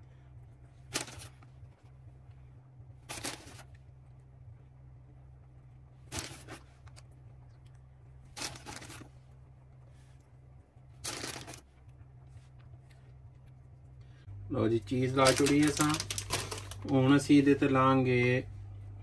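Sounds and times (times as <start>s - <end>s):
faint low hum: 0.0s - 19.0s
cheese rustling: 3.0s - 3.8s, 6.0s - 7.0s, 8.3s - 9.2s, 11.0s - 11.7s, 15.0s - 17.2s.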